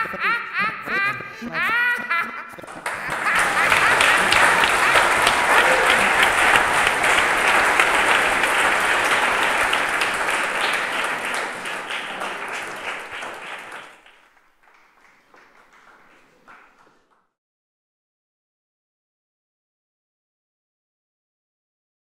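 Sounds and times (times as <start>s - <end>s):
audience applauding: 2.6s - 17.3s.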